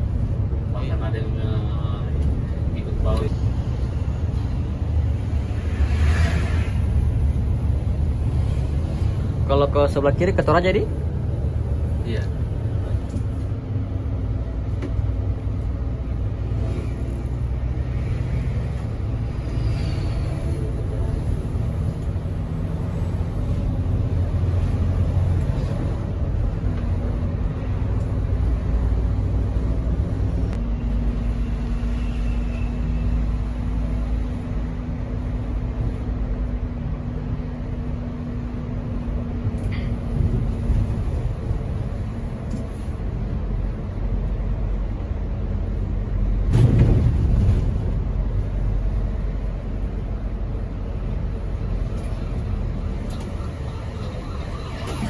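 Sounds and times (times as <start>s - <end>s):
rush of noise: 0.0s - 9.8s
bus diesel engine rumble: 0.0s - 55.0s.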